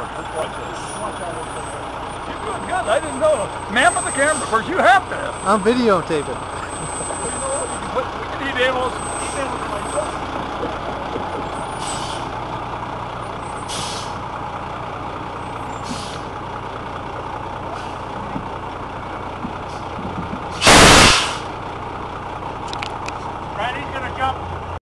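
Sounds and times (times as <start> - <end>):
engine running steadily: 0.0 - 24.8
short hisses: 11.8 - 12.3, 13.6 - 14.2, 20.5 - 21.5.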